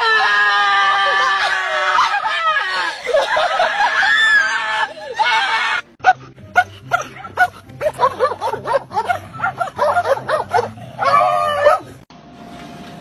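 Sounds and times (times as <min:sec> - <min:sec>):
dog barking in high yaps: 0:07.0 - 0:11.9.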